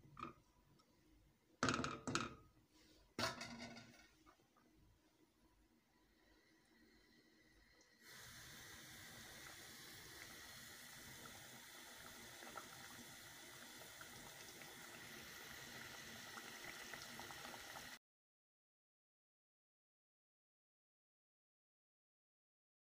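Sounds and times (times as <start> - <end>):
curry simmering with bubbling: 6.0 - 18.0.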